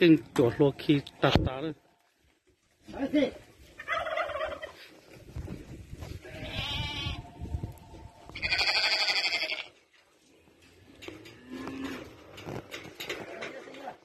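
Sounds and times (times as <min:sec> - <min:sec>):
goats bleating: 0:06.1 - 0:07.3, 0:08.3 - 0:09.8.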